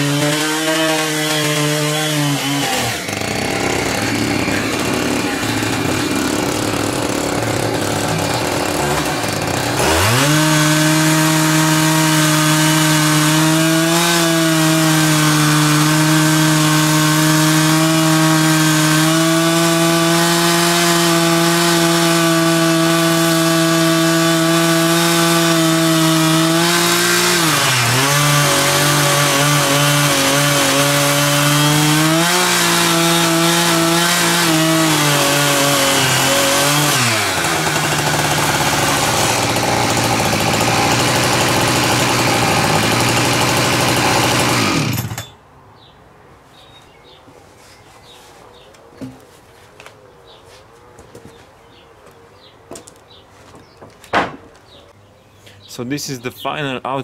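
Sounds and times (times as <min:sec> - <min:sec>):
chainsaw cutting log: 0:00.0 - 0:45.4.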